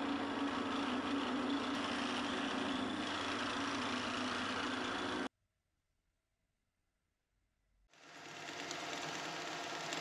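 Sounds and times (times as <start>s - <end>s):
electric lathe humming: 0.0s - 5.3s.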